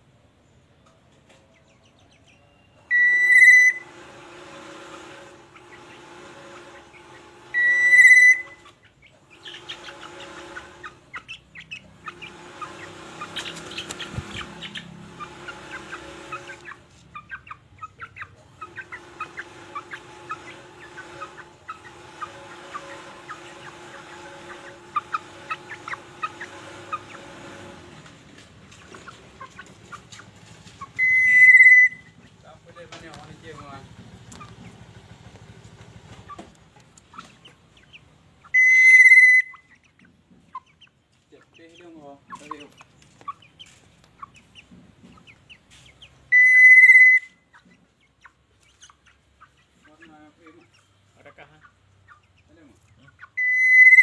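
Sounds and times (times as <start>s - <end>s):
bird chattering song: 0.5s - 3.8s, 7.0s - 10.2s, 10.8s - 27.2s, 28.7s - 35.0s, 36.2s - 54.0s
bird whistles: 2.5s - 3.8s, 7.5s - 8.7s, 30.8s - 32.2s, 38.5s - 39.7s, 46.3s - 47.4s, 53.3s - 54.0s.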